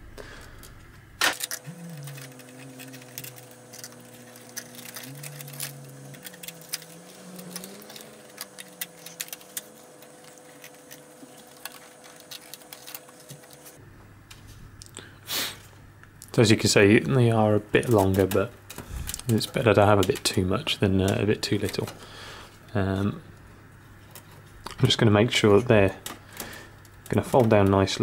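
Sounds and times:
cables clicking and rattling on metal: 0.4s - 13.8s, 17.8s - 22.0s, 24.0s - 28.0s
faint wavering tones: 1.5s - 13.8s.

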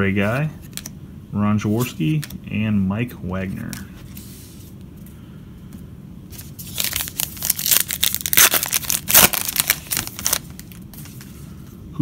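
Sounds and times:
wrapper tearing and crinkling: 6.4s - 10.8s.

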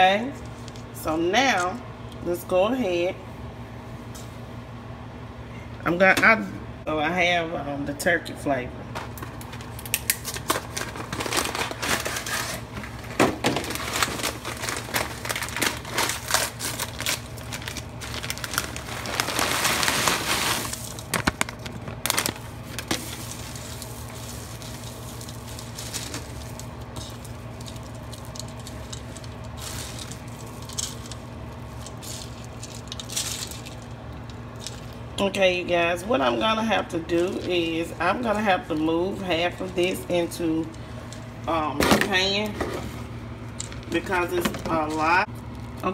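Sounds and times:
dry crumbs crackling: 13.7s - 41.4s
dry mix pouring: 13.8s - 35.1s.

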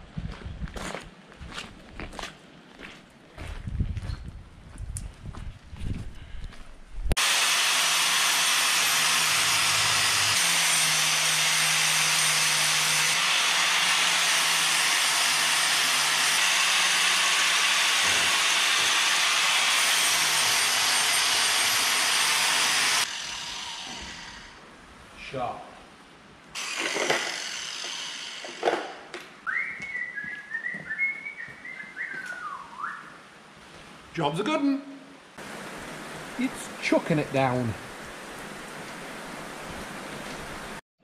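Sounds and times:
angle grinder grinding steel: 7.2s - 24.6s, 26.6s - 29.0s.

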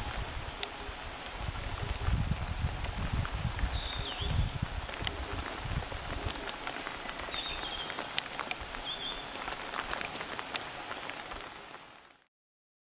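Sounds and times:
raindrop clicks: 0.0s - 12.2s
steady rain falling: 0.0s - 12.3s
high whistled bird notes: 3.2s - 4.6s.

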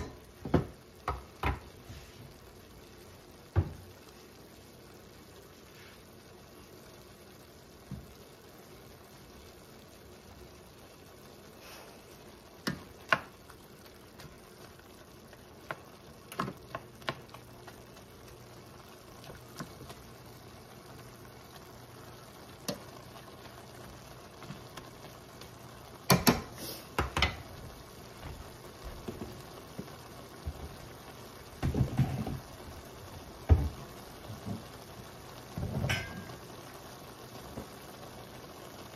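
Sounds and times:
spoon knocking and scraping pan: 0.0s - 1.8s, 12.6s - 13.5s, 15.6s - 17.8s, 26.1s - 27.5s, 31.6s - 32.5s, 33.4s - 34.7s, 35.6s - 36.4s
beef and onions sizzling: 0.0s - 38.9s.

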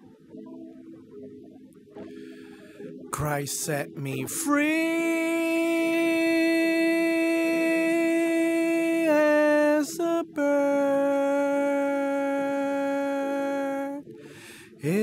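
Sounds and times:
person singing long held notes: 3.2s - 15.0s.

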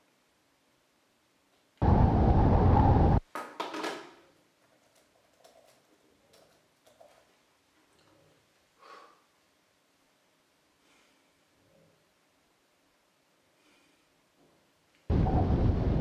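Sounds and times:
loud static hiss: 0.0s - 3.3s, 8.5s - 16.0s
laptop keys typing: 4.6s - 7.3s.

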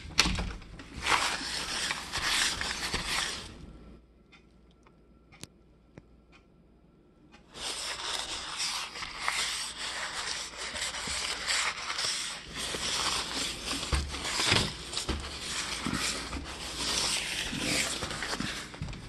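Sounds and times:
paper towel rubbing on glass: 1.0s - 3.5s, 7.6s - 19.0s.

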